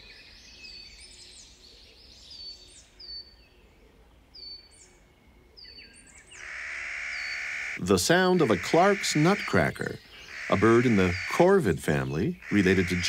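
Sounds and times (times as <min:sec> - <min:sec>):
high bird chirps: 0:06.3 - 0:13.0
rasping bird call: 0:06.4 - 0:13.0.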